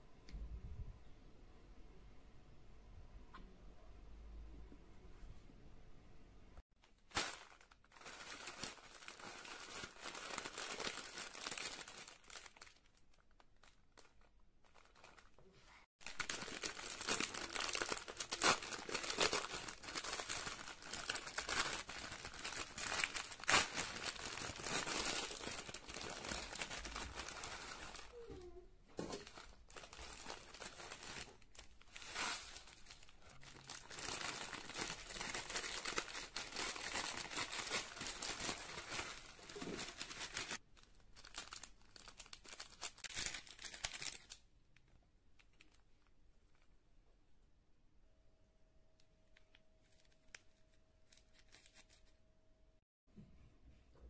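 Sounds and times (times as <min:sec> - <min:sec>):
plastic packet crinkling and tearing: 0:06.8 - 0:28.4, 0:29.0 - 0:44.5, 0:49.4 - 0:52.1.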